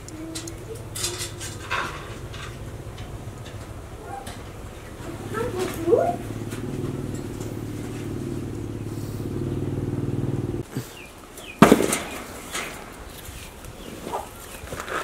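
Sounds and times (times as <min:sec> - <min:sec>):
motor droning: 0:00.0 - 0:10.6
loud rustling crackle: 0:11.4 - 0:15.0.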